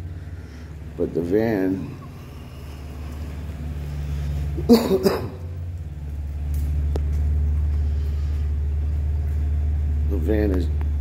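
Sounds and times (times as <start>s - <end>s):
low rumble: 0.0s - 11.0s
person coughing: 4.6s - 5.5s.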